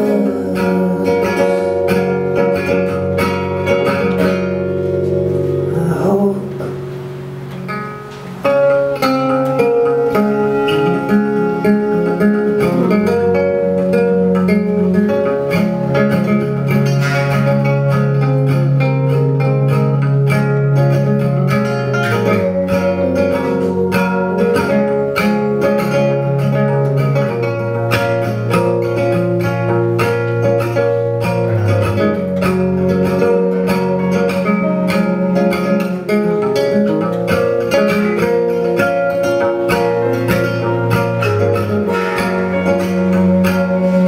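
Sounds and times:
acoustic guitars playing: 0.0 - 44.0.

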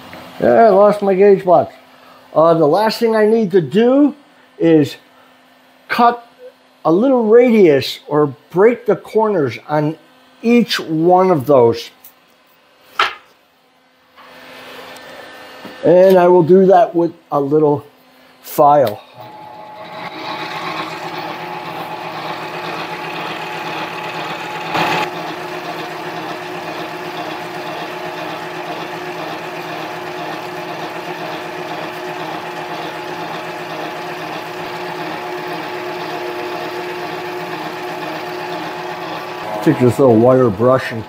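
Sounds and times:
lathe motor humming: 19.0 - 41.0
file on spinning metal: 19.2 - 41.0.

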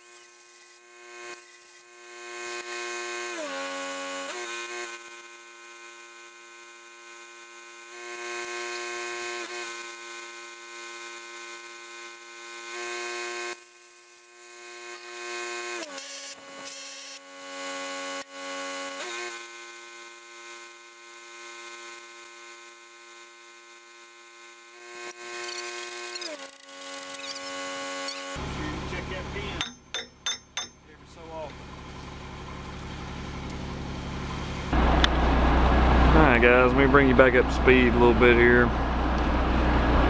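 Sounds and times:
welding machine hum: 0.0 - 30.8, 31.6 - 38.0.

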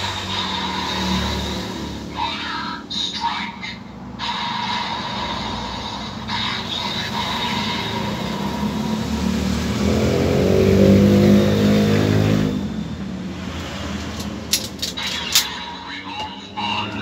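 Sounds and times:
toy belt electronic transformation sound: 0.0 - 9.1, 14.5 - 15.9
sharp plastic clicks: 14.0 - 15.6.

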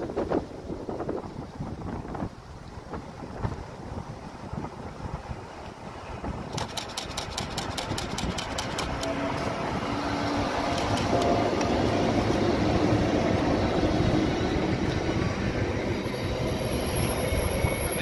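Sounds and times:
train wheels rumbling on rail: 0.0 - 18.0
electric locomotive hum: 3.6 - 18.0
rapid clicks: 6.5 - 9.1.

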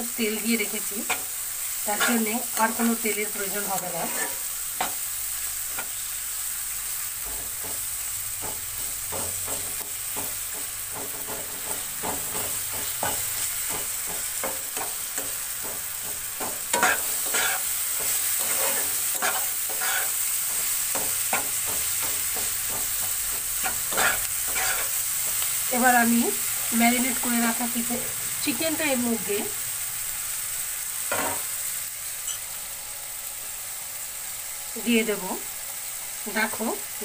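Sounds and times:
vegetables sizzling in oil: 0.0 - 37.0
spatula scraping a pan: 1.9 - 2.5, 3.8 - 5.0, 8.4 - 25.5.

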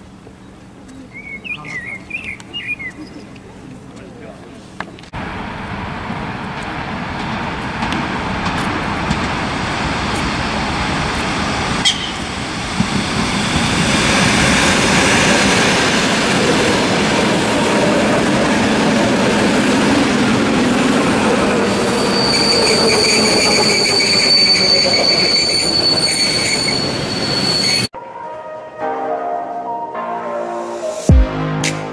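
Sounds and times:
train wheels rushing on rails: 5.1 - 27.9
high-pitched wheel squeal: 21.7 - 27.9.

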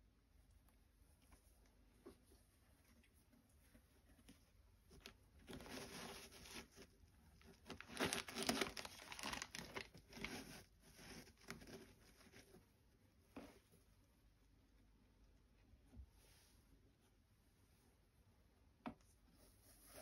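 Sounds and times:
plastic crinkling and rustling: 4.9 - 12.5.

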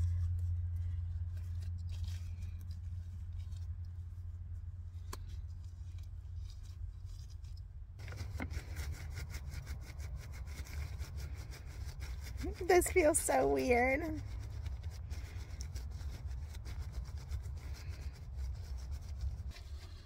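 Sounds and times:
steady low hum: 0.0 - 20.0
shampoo cap crinkling and rubbing: 5.0 - 20.0.

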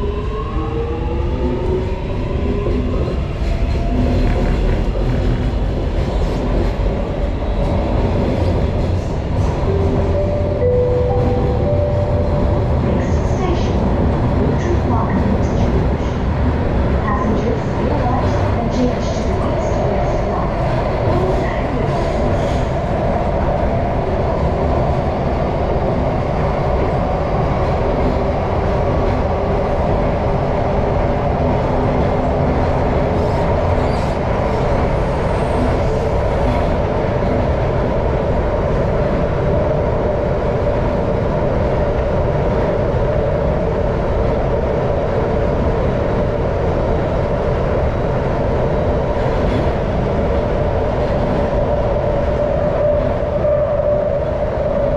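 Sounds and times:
train rumble: 0.0 - 54.9.

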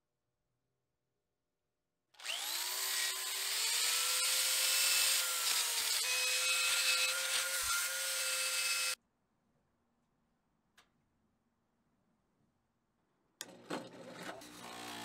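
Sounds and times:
electric drill whine: 2.2 - 9.0.

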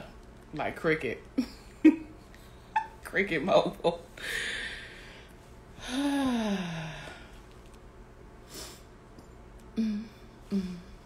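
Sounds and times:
woman sighing: 5.8 - 7.3, 9.8 - 11.0.

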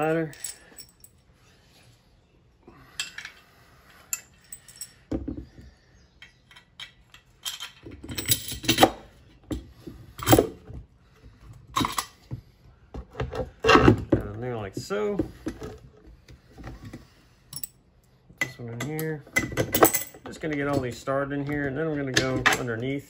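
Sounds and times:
metal brackets clinking: 6.2 - 9.1.

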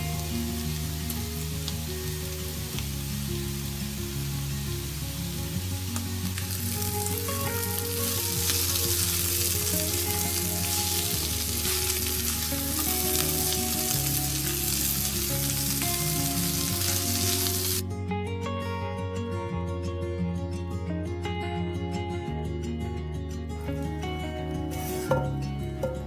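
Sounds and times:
vegetables sizzling in oil: 0.0 - 17.8.

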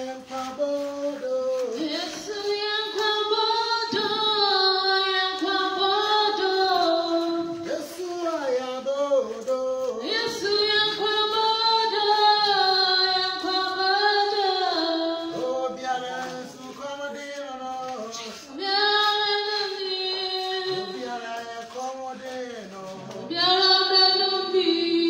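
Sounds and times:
women singing a church song: 0.0 - 25.0.

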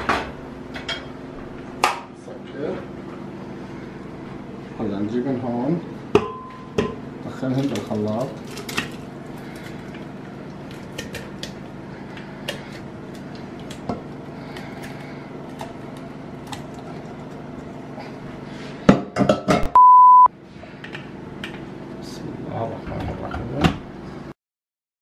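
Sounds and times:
loud steady beep: 19.7 - 20.3.

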